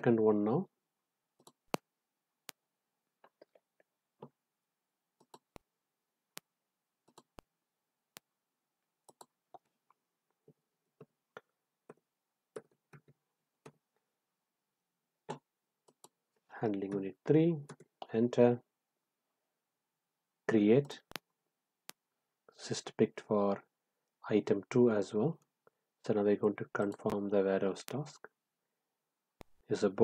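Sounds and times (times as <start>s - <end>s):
computer mouse clicks: 5.2s - 5.6s, 6.4s - 7.5s, 9.0s - 9.7s.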